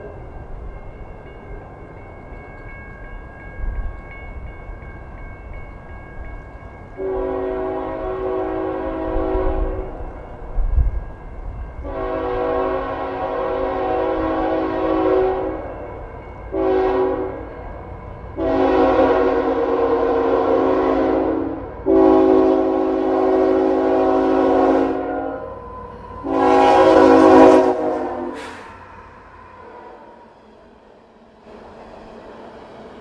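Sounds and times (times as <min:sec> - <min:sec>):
low rumble of train: 0:00.0 - 0:33.0
locomotive air horn blasts: 0:07.0 - 0:10.0, 0:11.8 - 0:15.7, 0:16.5 - 0:17.5, 0:18.4 - 0:28.7.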